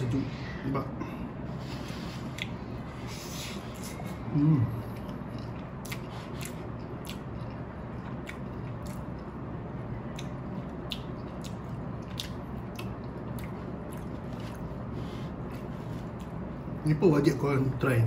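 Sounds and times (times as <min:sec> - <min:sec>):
low background noise: 0:00.0 - 0:18.0
chewing noodles: 0:04.7 - 0:16.8.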